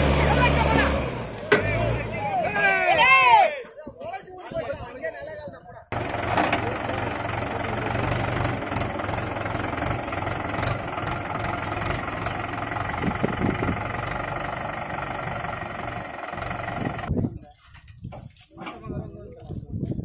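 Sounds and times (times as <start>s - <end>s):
tractor diesel engine idling: 0.0s - 2.4s, 5.9s - 17.1s.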